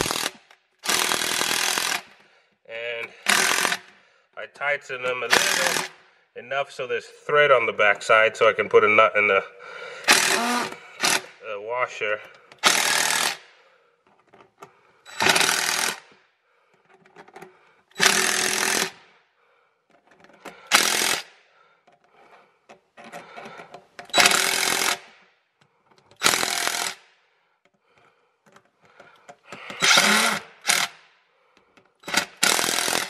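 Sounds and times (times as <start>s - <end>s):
impact driver hammering: 0.0s - 2.2s, 3.2s - 3.9s, 12.6s - 13.4s, 15.1s - 16.1s, 18.0s - 19.0s, 20.7s - 21.3s, 24.1s - 25.1s, 26.2s - 27.0s, 29.6s - 31.0s, 32.0s - 33.0s.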